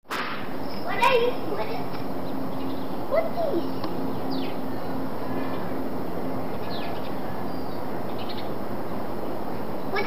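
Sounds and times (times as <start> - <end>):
outdoor background noise: 0.0 - 10.0
faint low hum: 0.4 - 10.0
high falling bird chirps: 0.5 - 10.0.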